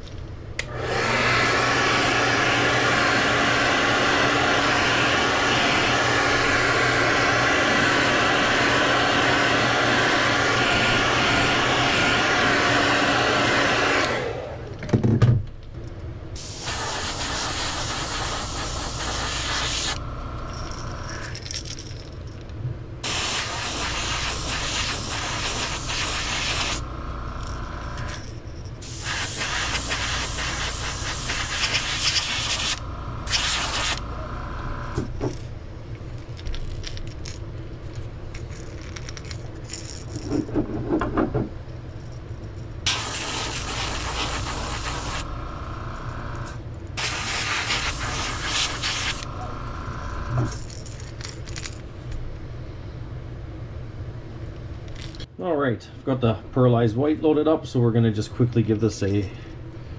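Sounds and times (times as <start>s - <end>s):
airbrush spraying hiss: 16.4s - 20.0s, 23.0s - 26.8s, 28.8s - 34.0s, 42.9s - 45.3s, 47.0s - 49.3s.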